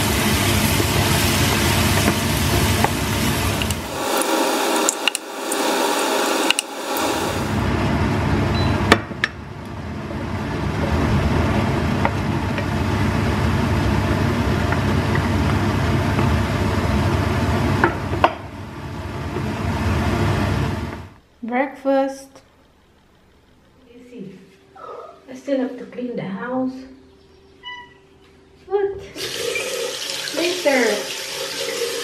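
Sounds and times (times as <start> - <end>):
food sizzling in a frying pan: 0.0 - 7.6, 29.2 - 32.0.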